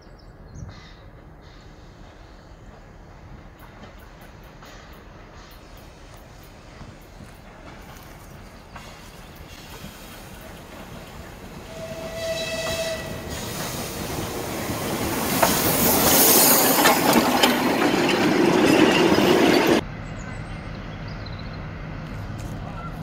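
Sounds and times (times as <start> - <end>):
train wheels clicking over rail joints: 1.1 - 19.8
steam hissing: 1.4 - 19.8
steam whistle blast: 11.6 - 13.7.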